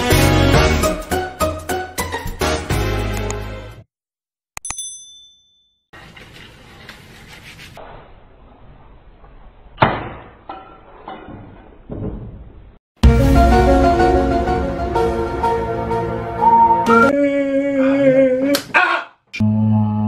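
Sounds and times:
music: 0.0s - 3.8s, 13.0s - 17.2s.

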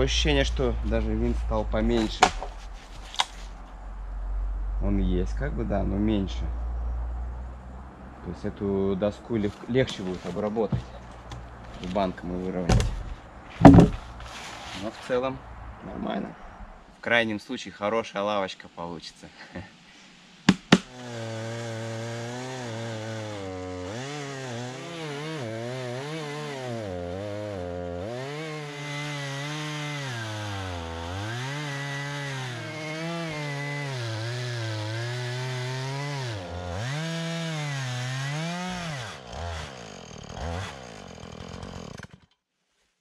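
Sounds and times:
chainsaw cutting log: 1.9s - 3.4s, 12.7s - 14.2s, 20.5s - 42.4s.

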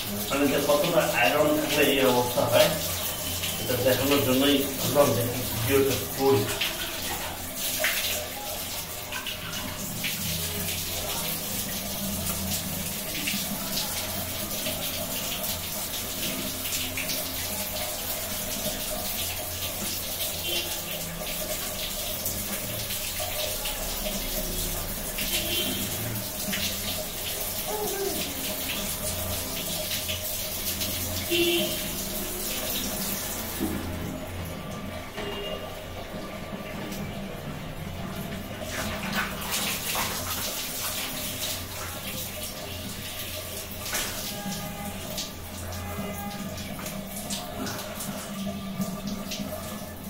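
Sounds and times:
water running and splashing: 0.0s - 50.0s.

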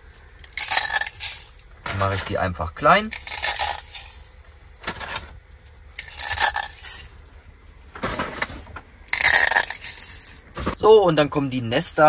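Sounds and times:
dried pasta crackling: 0.4s - 2.4s, 9.1s - 10.5s.

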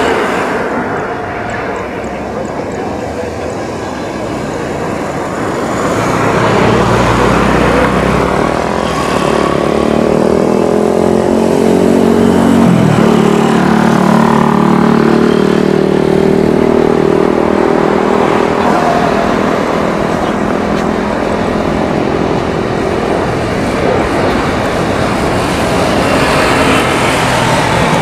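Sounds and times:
jet engines at takeoff power: 0.0s - 10.2s, 17.8s - 28.0s.

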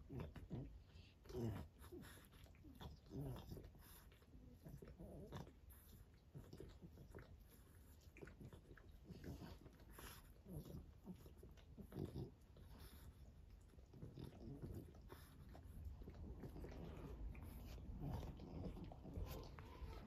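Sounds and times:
dog licking and chewing: 0.0s - 20.0s
dog grunting: 8.5s - 20.0s.

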